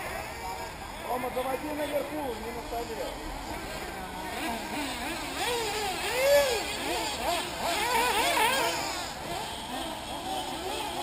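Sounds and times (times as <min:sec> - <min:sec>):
rc buggy engines revving: 0:00.0 - 0:11.0.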